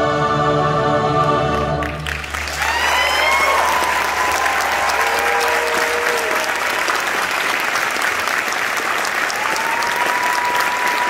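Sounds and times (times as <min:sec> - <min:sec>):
audience applauding: 0:01.8 - 0:11.0
long cheers: 0:02.4 - 0:07.0, 0:09.2 - 0:11.0.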